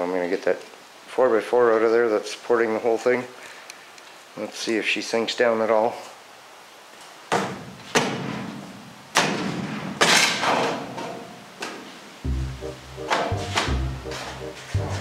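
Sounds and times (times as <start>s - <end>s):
music: 12.2s - 15.0s.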